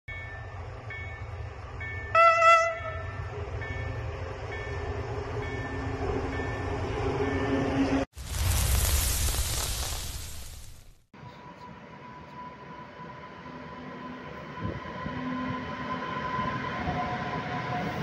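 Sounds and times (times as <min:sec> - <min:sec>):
low rumble of train: 0:00.1 - 0:08.1, 0:11.2 - 0:18.0
train horn: 0:02.1 - 0:03.3, 0:11.2 - 0:18.0.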